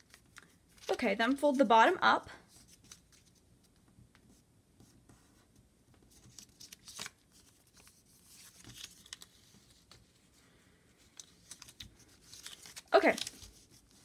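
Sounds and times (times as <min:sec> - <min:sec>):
paper being folded by hand: 0:00.0 - 0:01.6, 0:02.5 - 0:14.0.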